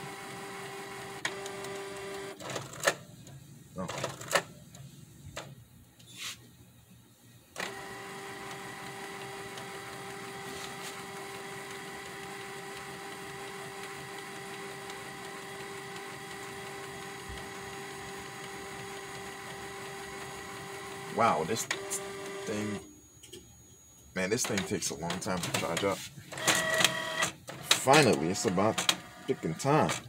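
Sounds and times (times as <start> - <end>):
printer mechanism whirring: 0.0 - 5.6, 7.6 - 22.8, 24.2 - 30.0
faint printer clicks: 24.4 - 29.1.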